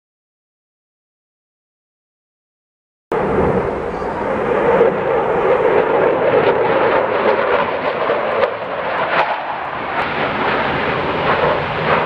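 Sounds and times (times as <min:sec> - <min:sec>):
jet aircraft flying past: 0:03.1 - 0:12.0.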